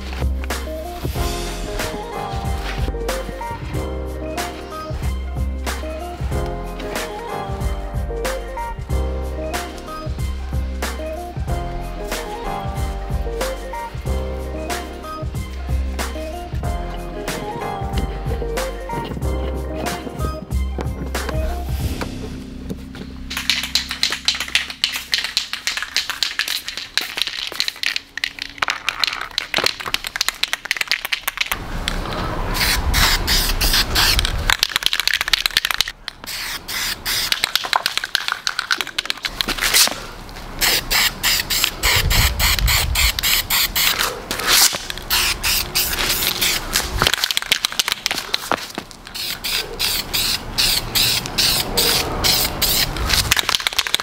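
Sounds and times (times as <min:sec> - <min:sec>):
spray paint can hissing: 0:23.3 - 0:31.6, 0:32.6 - 0:40.0, 0:40.6 - 0:54.0.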